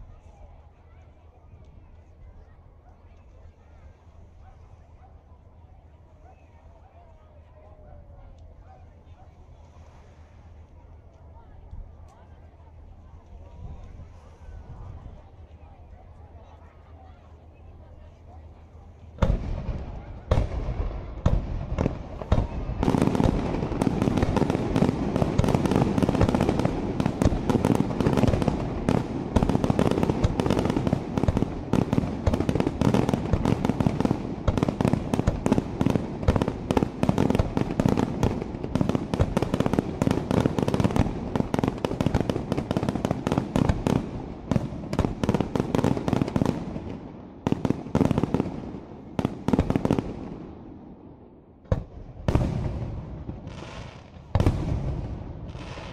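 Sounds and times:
fireworks bursting: 0:19.2 - 0:50.5, 0:51.6 - 0:55.9.

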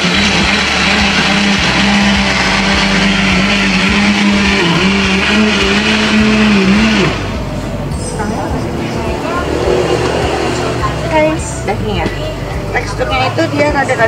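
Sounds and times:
blender motor running: 0:00.0 - 0:07.5.

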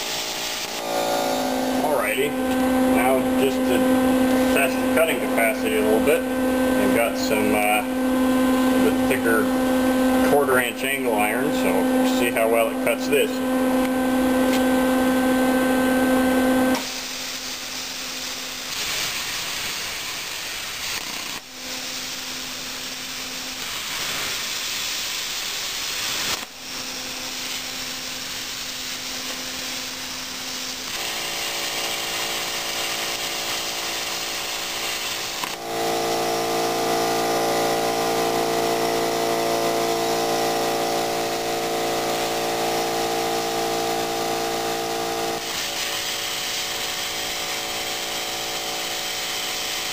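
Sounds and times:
steady multi-tone hum: 0:00.0 - 0:19.5
plasma cutter hissing: 0:00.0 - 0:49.9.

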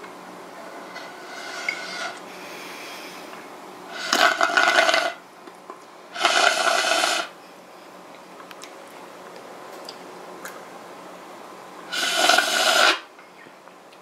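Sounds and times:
slurping through a straw: 0:03.9 - 0:05.2, 0:06.2 - 0:07.3, 0:11.9 - 0:13.0.

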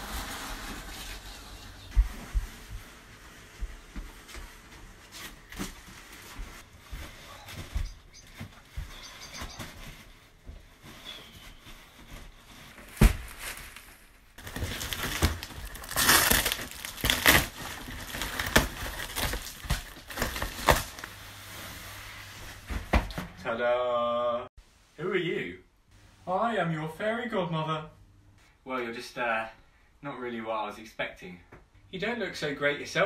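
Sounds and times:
cardboard box tearing: 0:14.4 - 0:21.1.

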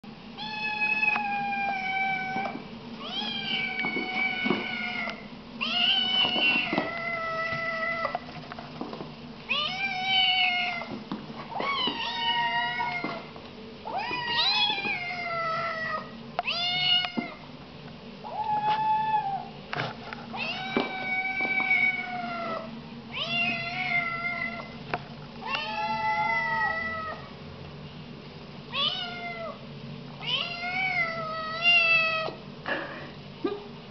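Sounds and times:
kittens meowing loudly: 0:11.5 - 0:13.2, 0:13.9 - 0:17.4, 0:25.4 - 0:27.3.

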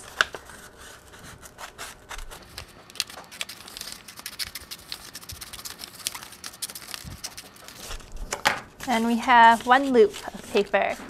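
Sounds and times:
scissors snipping paper: 0:01.7 - 0:08.0.

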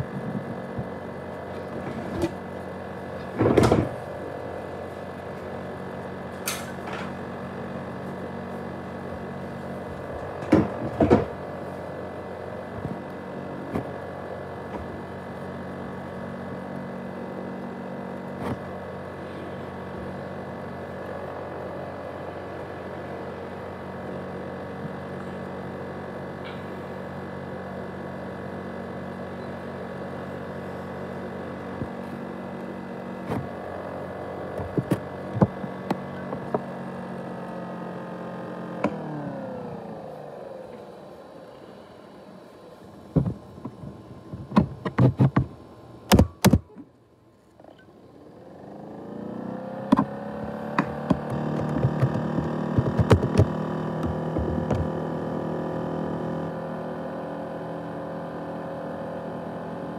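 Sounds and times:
laptop cooling fan whirring: 0:00.0 - 0:59.9
sudden thumps: 0:50.8 - 0:55.0.

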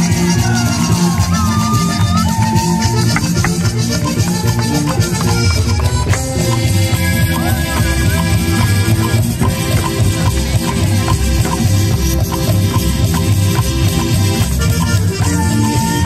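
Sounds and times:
accordion dance music over speaker: 0:00.0 - 0:16.0.

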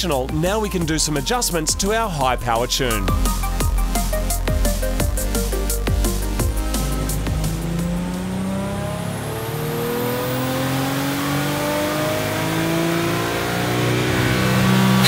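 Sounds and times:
car engine revving at full throttle: 0:05.5 - 0:15.0.

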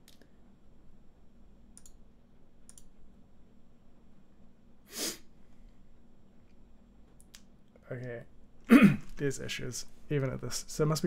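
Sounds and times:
faint low hum: 0:00.0 - 0:11.0
computer mouse clicks: 0:01.8 - 0:02.0, 0:02.7 - 0:03.0.

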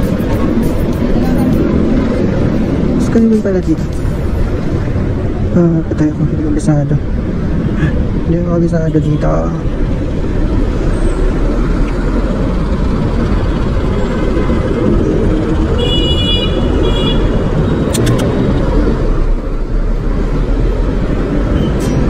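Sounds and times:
wind and road noise: 0:00.0 - 0:22.0
vehicle horn: 0:15.8 - 0:17.4.

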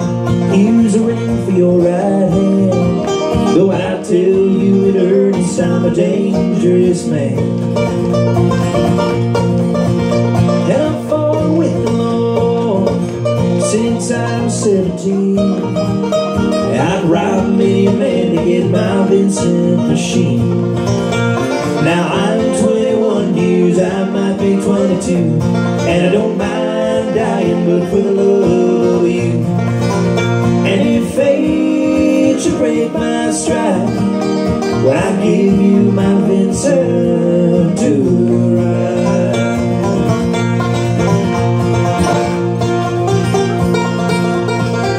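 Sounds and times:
person singing: 0:00.0 - 0:07.5, 0:10.6 - 0:16.0, 0:16.6 - 0:20.5, 0:21.8 - 0:29.6, 0:30.6 - 0:34.0, 0:34.7 - 0:40.0
acoustic guitar strumming: 0:00.0 - 0:44.9
banjo picking: 0:00.0 - 0:44.9.

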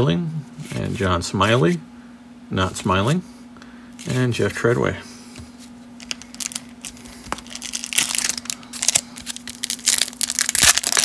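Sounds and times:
foil wrapper crinkling and tearing: 0:06.0 - 0:11.0.

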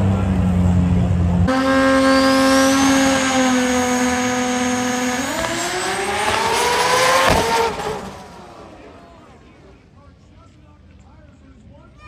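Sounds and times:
race car engines revving: 0:00.0 - 0:11.0
sharp crack: 0:05.2 - 0:08.4.

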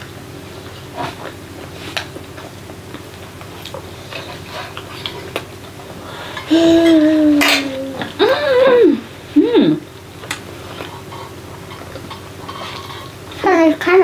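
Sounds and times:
young child humming: 0:06.4 - 0:09.8.

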